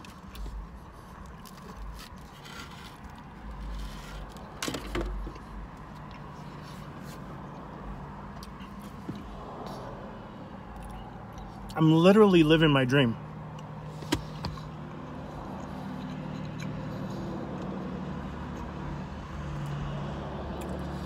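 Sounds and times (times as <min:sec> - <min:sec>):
passing traffic rumbles: 0:00.0 - 0:21.0
person eating mouth sounds: 0:15.5 - 0:17.8.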